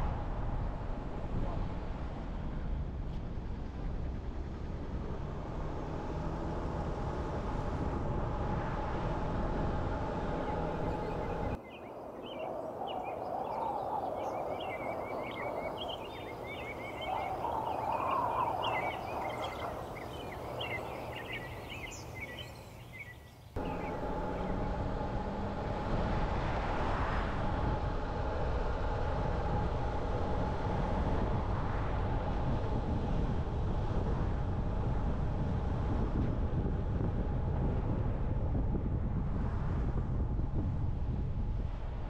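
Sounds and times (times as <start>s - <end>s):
car road noise: 0.0s - 23.0s, 23.6s - 42.0s
faint hum: 0.0s - 42.0s
low traffic noise: 0.0s - 42.0s
small birds chirping: 10.3s - 25.0s.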